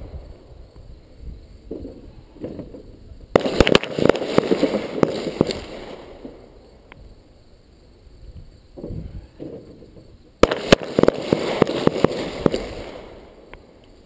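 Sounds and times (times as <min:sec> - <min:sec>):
pistol gunshots echoing: 0:03.4 - 0:06.3, 0:10.4 - 0:13.4.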